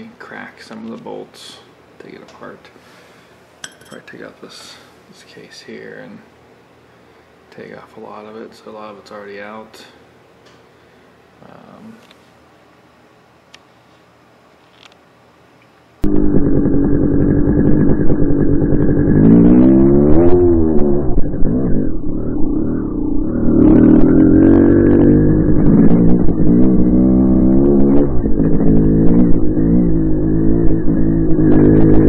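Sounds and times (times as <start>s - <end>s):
dirt bike engine revving: 16.0s - 32.0s.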